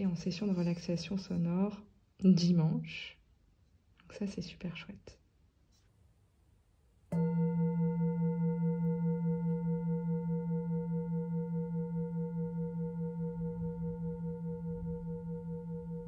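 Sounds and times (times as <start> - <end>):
singing bowl ringing: 7.1 - 16.0
singing bowl struck with mallet: 7.1 - 16.0.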